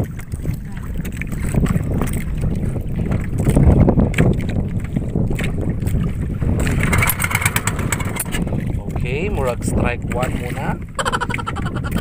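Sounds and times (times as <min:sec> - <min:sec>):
boat engine hand-cranked: 0:06.6 - 0:09.0.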